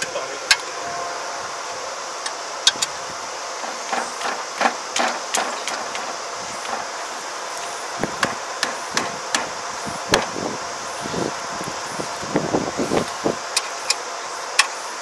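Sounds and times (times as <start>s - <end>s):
steady hiss: 0.0s - 15.0s.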